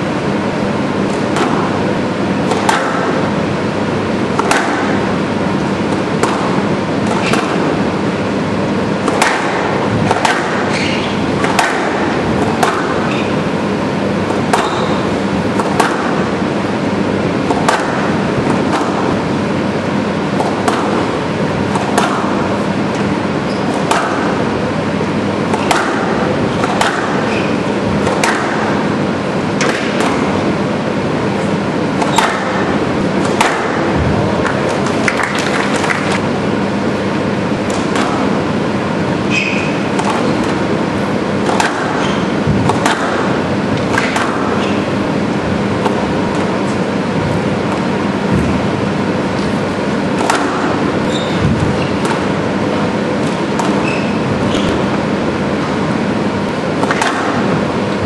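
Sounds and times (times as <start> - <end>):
background hum and hiss: 0.0 - 58.0
squash ball cracks: 1.1 - 3.4, 4.3 - 8.0, 8.9 - 13.5, 14.2 - 16.6, 17.2 - 23.1, 23.7 - 24.8, 25.4 - 30.6, 31.9 - 36.4, 37.6 - 38.7, 39.4 - 45.2, 47.6 - 56.0, 56.7 - 57.7.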